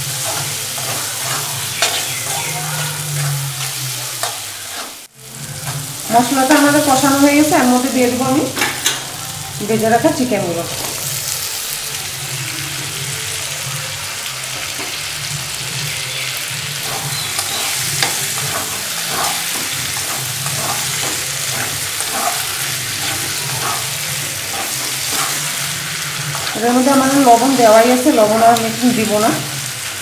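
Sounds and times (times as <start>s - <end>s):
spatula scraping pan: 0.0s - 7.5s, 16.8s - 28.4s
chicken sizzling in oil: 0.0s - 30.0s.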